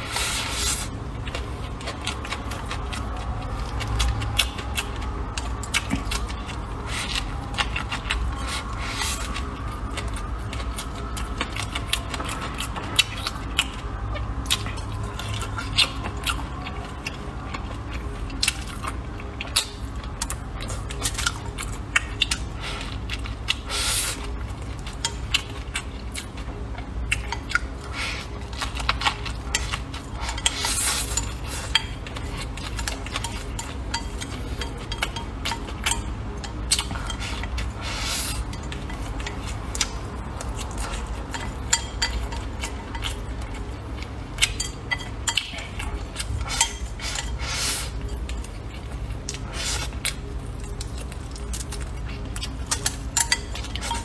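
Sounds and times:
chewing and slurping noodles: 0:00.0 - 0:54.0.

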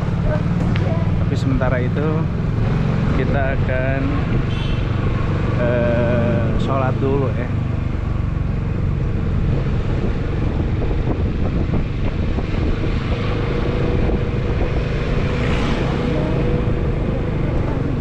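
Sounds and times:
road rumble: 0:00.0 - 0:18.0
vehicle engine running: 0:00.0 - 0:18.0
wind on microphone: 0:08.8 - 0:18.0.

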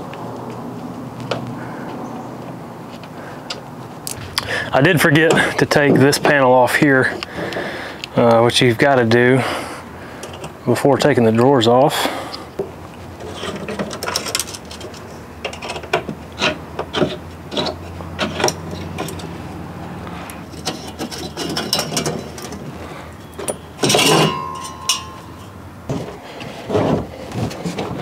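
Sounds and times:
small metal clicks and scrapes: 0:13.2 - 0:19.3, 0:20.2 - 0:22.8
metal panel clattering: 0:20.5 - 0:22.8, 0:23.4 - 0:28.0.

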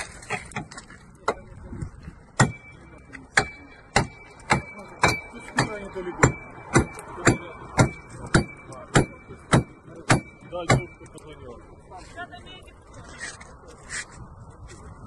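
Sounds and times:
sharp knocks: 0:03.3 - 0:11.0.

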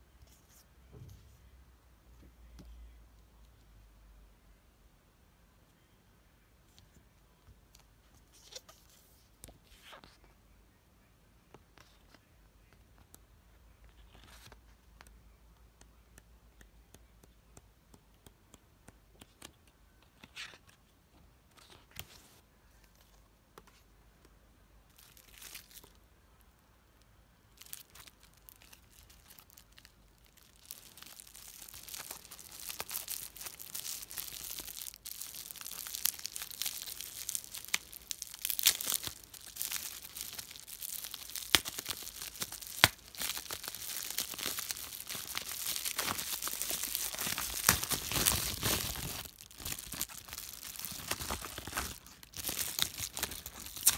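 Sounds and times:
bubble wrap crinkling: 0:24.9 - 0:26.0, 0:27.5 - 0:53.9.

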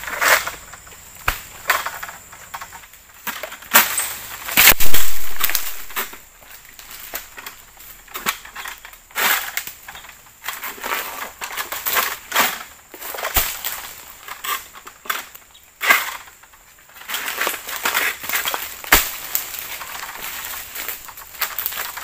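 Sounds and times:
sickle cutting palm fronds: 0:01.2 - 0:22.0
frond cracking: 0:03.7 - 0:08.8, 0:17.2 - 0:22.0.

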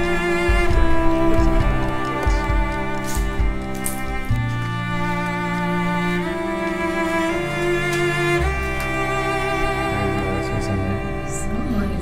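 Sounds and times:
slow bowed string music: 0:00.0 - 0:12.0.

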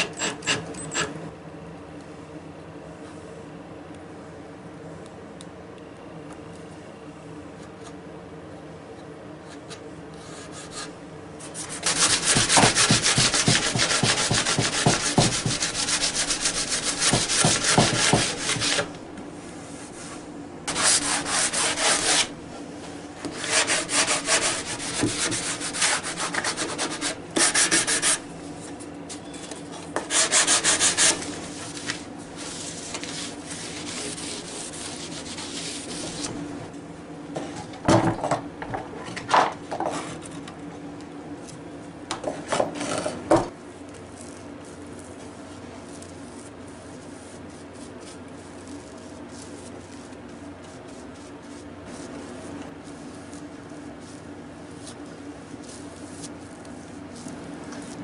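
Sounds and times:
sanding block scrubbing wood: 0:11.6 - 0:18.9, 0:20.7 - 0:22.4, 0:23.3 - 0:28.2, 0:30.1 - 0:36.3.

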